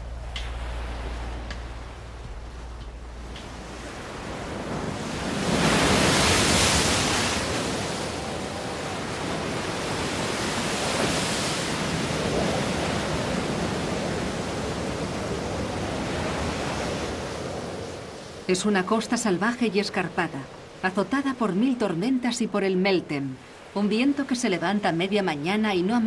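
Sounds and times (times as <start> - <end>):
waves breaking on rocky shore: 0.0 - 18.5.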